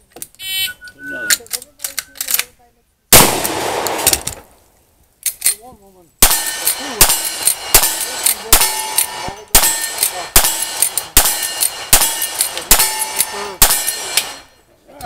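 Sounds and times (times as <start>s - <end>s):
rifle shots: 3.1s - 4.6s, 6.2s - 14.5s
steel targets ringing: 6.2s - 14.6s.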